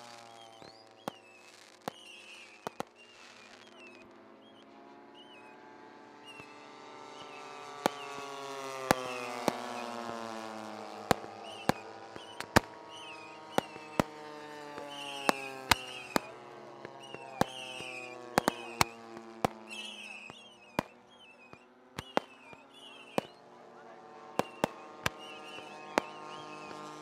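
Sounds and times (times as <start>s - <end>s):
firework bangs: 0.0s - 4.6s, 6.2s - 27.0s
model airplane engine drone: 0.0s - 27.0s.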